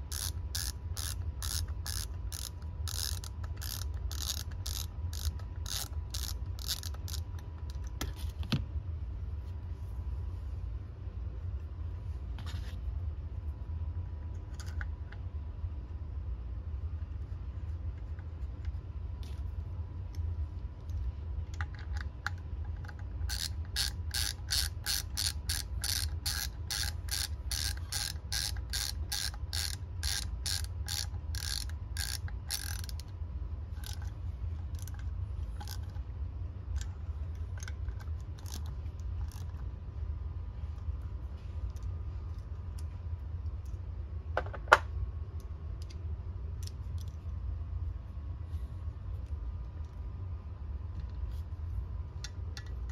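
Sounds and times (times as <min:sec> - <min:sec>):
hand ratchet clicking: 0:00.0 - 0:07.8, 0:23.2 - 0:33.1, 0:33.8 - 0:34.1, 0:38.4 - 0:39.6.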